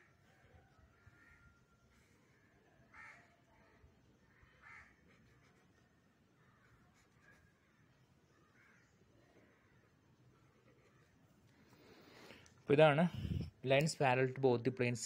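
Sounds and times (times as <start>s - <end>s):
faint crow caws: 0.0s - 5.4s, 6.2s - 12.5s.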